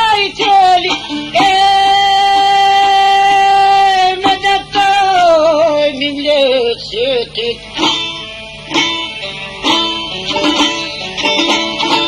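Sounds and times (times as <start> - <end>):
person singing long wavering note: 0.0 - 7.6.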